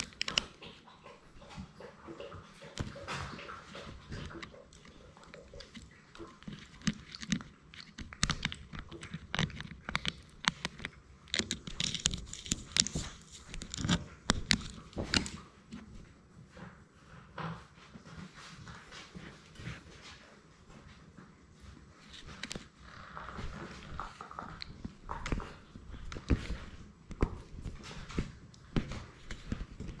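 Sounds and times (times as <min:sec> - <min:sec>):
puppy teeth clicking on plastic: 0:00.0 - 0:00.8, 0:04.1 - 0:15.8.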